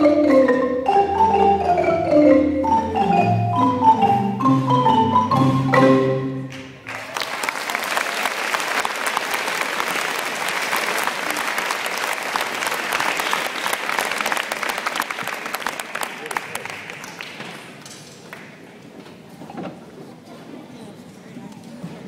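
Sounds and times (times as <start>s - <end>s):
low crowd chatter: 6.0s - 22.0s
audience applauding: 6.5s - 18.6s.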